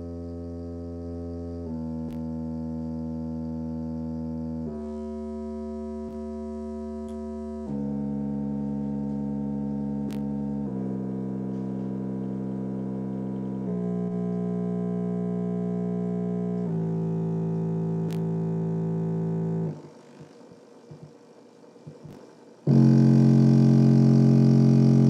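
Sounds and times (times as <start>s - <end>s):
subwoofer low test tones: 0.0s - 19.9s, 21.9s - 25.0s.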